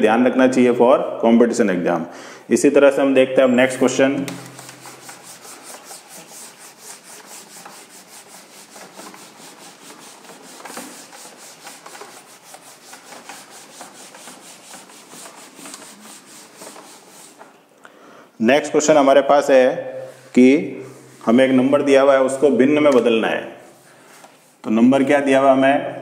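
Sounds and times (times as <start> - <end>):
eraser rubbing on whiteboard: 3.6 - 17.6, 20.1 - 22.7.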